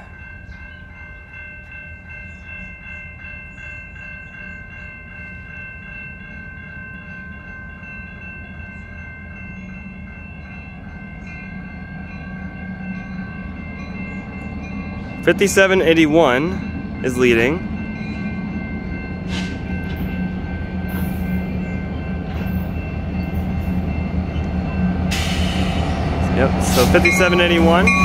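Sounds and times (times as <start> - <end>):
diesel locomotive rumble: 0.0 - 28.0
railway crossing bell ringing: 0.0 - 28.0.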